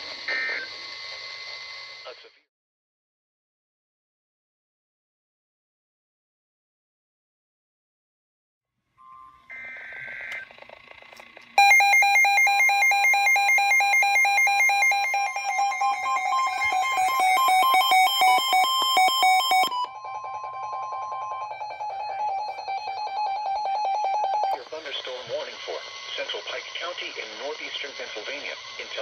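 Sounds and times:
steady warning alarm tone: 9.0 - 29.0
two-pitch alert beeping: 11.6 - 24.6
data burst screech: 13.0 - 20.0.

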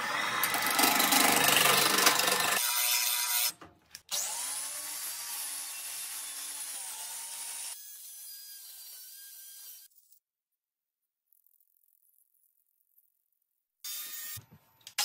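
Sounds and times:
hand gouge cutting spinning wood: 0.0 - 2.6
angle grinder cutting wood: 0.0 - 9.9.

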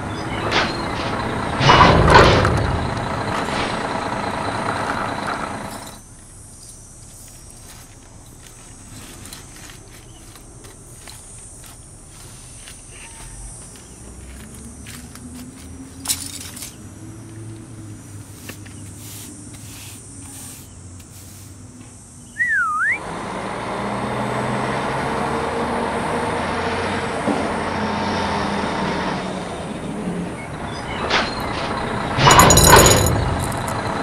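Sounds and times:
truck engine rumbling: 0.0 - 34.0
short wavering whistle: 22.3 - 23.0.

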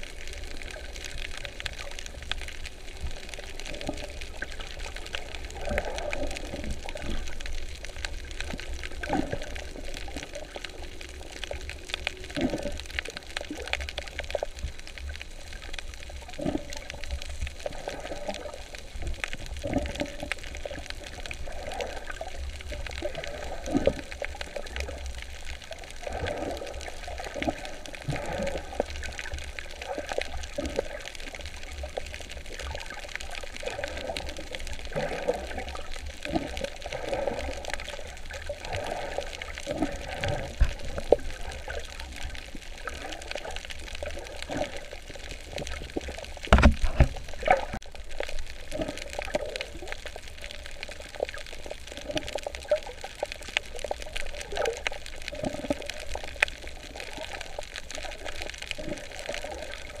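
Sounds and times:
underwater water sloshing: 0.0 - 60.0
knocks underwater: 46.4 - 47.8.

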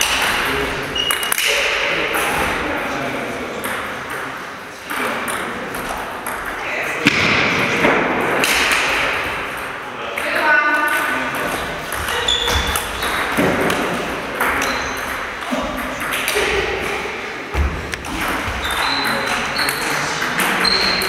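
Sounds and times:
sports shoes squeaking on floor: 0.9 - 1.4, 11.9 - 13.4, 14.6 - 15.2, 18.4 - 20.0, 20.6 - 21.0.

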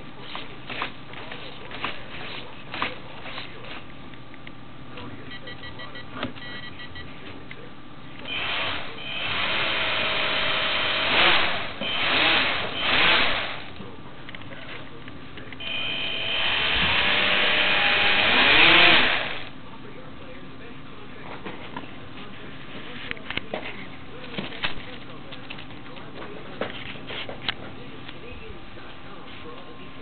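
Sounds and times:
toy plane motors whirring: 15.6 - 19.5.

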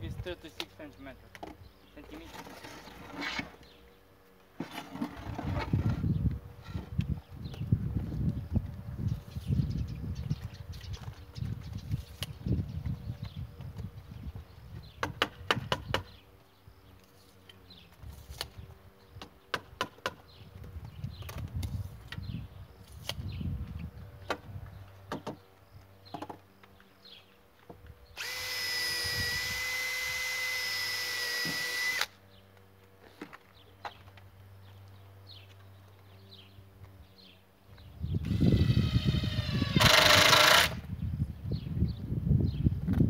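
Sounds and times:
power drill running: 28.2 - 32.1, 38.2 - 40.8.

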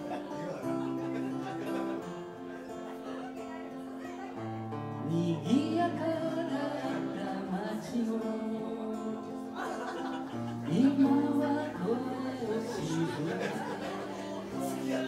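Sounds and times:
strummed acoustic guitar: 0.0 - 15.0
man singing folk song: 4.9 - 15.0.

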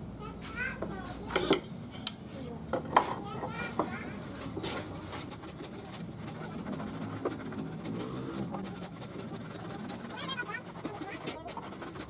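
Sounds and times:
hand plane shaving wood: 4.4 - 12.0.

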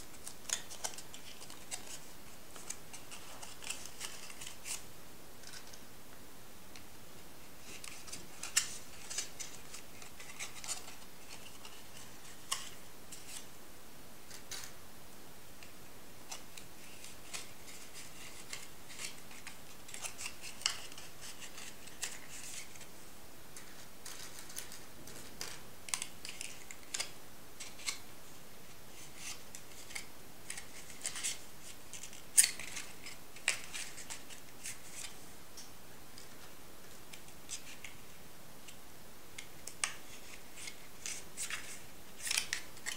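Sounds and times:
paper crackling and rustling: 0.1 - 4.8, 7.6 - 13.5, 23.6 - 28.0, 39.6 - 42.9
paper snap: 40.6 - 42.9.

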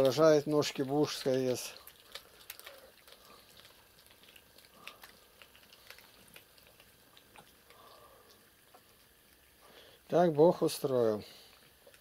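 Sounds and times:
cats chewing raw fish: 0.0 - 12.0.

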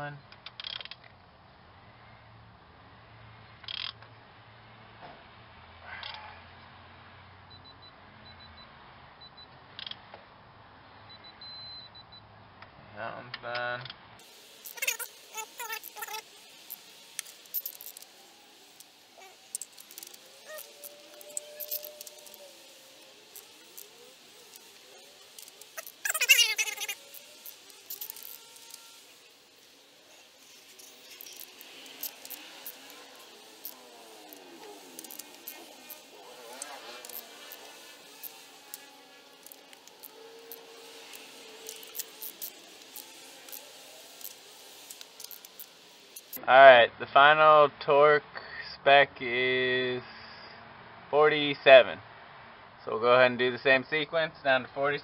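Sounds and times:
torque wrench clicks: 0.4 - 1.1, 3.6 - 4.0, 14.6 - 22.7, 23.3 - 29.2, 30.1 - 46.4
faint drawn-out squeak: 19.2 - 29.3.

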